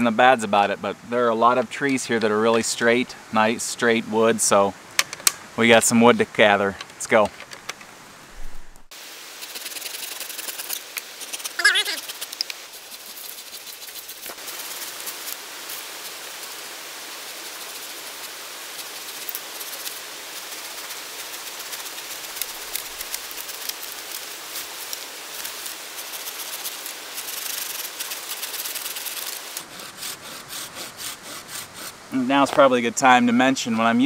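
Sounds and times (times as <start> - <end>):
brush and branches rustling: 6.4 - 32.7
hand saw cutting wood: 24.9 - 32.0.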